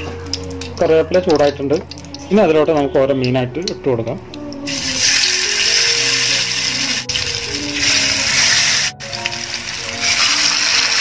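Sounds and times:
background music: 0.0s - 11.0s
fish sizzling in hot oil: 4.6s - 11.0s.

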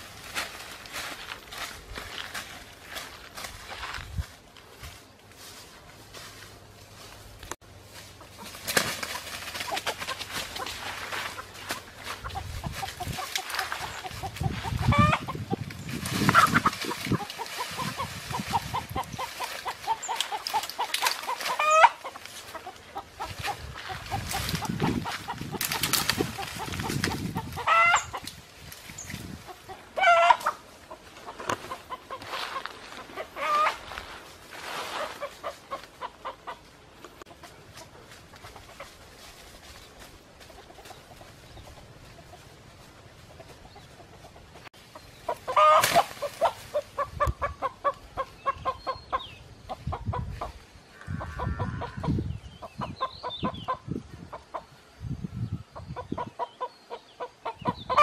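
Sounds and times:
chicken clucking and squawking: 8.1s - 28.4s, 29.1s - 54.8s, 55.7s - 58.0s.

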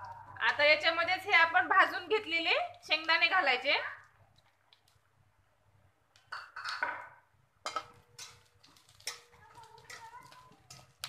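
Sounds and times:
spatula scraping a pan: 7.6s - 11.0s.

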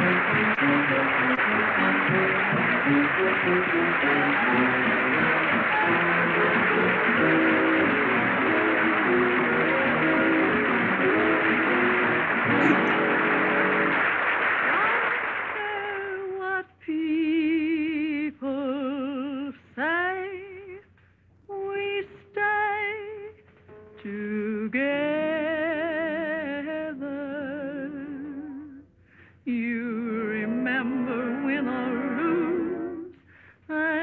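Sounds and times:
band playing: 0.0s - 15.1s
woman singing with vibrato: 15.6s - 20.8s, 21.5s - 23.4s, 24.0s - 28.8s, 29.5s - 34.0s.

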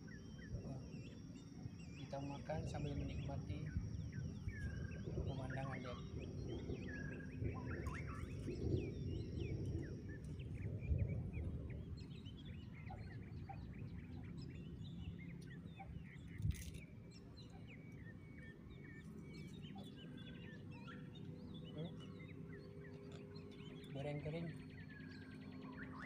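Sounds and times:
birds chirping: 0.0s - 26.0s
low outdoor rumble: 0.0s - 26.0s.

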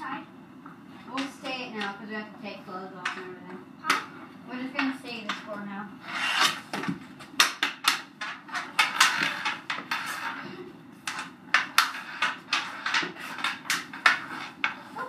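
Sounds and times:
hockey sticks clacking together: 6.4s - 10.4s, 11.0s - 14.9s.

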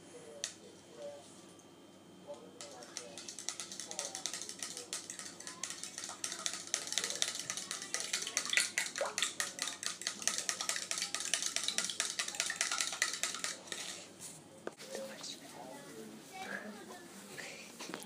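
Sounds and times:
spoon stirring in plastic cup: 2.6s - 14.1s.

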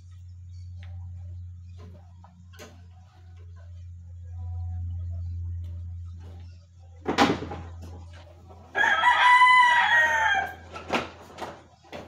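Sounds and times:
rooster crowing: 8.7s - 10.8s.

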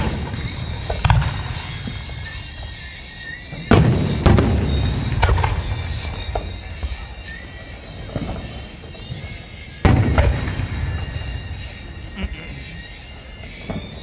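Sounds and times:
firework shells booming: 0.0s - 2.2s, 3.5s - 7.0s, 9.8s - 11.5s.

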